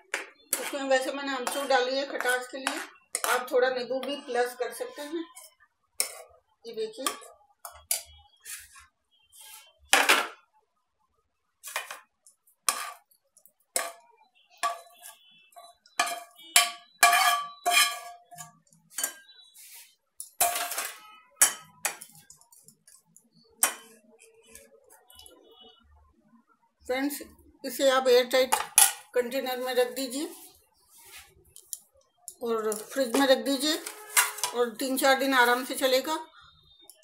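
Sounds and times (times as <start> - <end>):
metal spoon scraping and clinking: 0.5 - 3.6, 5.3 - 6.3, 12.6 - 14.0, 14.6 - 25.2, 28.5 - 29.1, 31.5 - 35.0.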